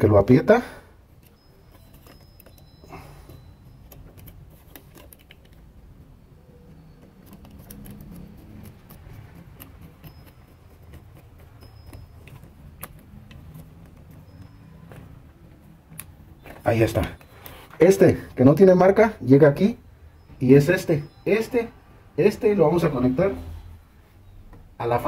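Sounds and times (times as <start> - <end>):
screwdriver clicks and scrapes: 1.2 - 5.7, 6.7 - 15.2
switch and wires handled: 1.2 - 5.8, 6.5 - 17.8.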